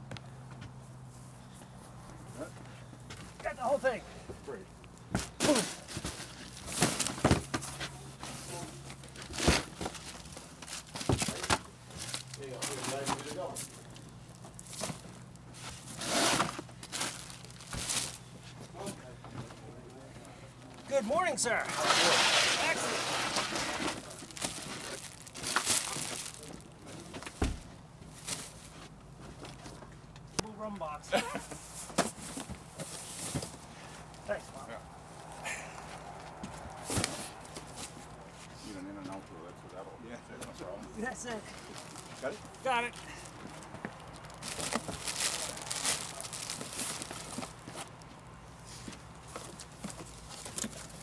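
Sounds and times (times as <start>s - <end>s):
plastic packages rustling: 8.5s - 18.3s, 21.6s - 26.9s, 41.3s - 48.2s, 49.2s - 51.0s
dull thump: 27.4s - 27.7s.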